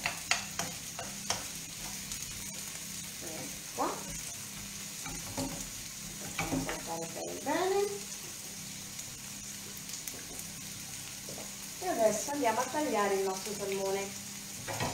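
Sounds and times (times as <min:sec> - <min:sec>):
wooden spoon clicking on pan: 0:00.0 - 0:01.5
vegetables sizzling in hot oil: 0:00.0 - 0:14.9.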